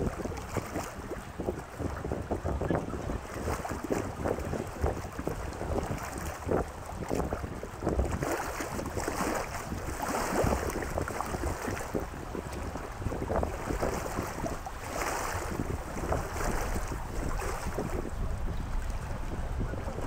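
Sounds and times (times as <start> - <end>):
lake water lapping at shore: 0.0 - 20.0
wind buffeting microphone: 0.0 - 20.0.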